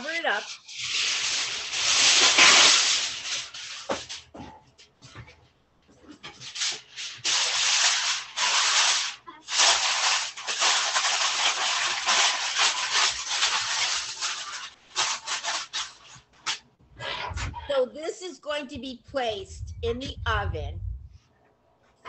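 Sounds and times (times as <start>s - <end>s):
aluminum foil crinkling: 0.0s - 4.4s, 6.0s - 16.6s.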